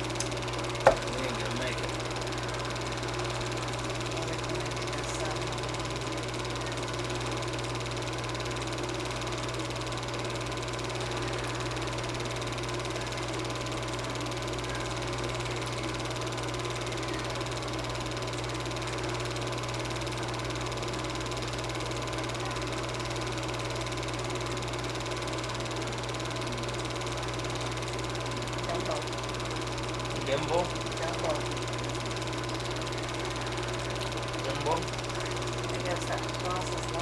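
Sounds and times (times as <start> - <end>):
film projector whirring: 0.0 - 37.0.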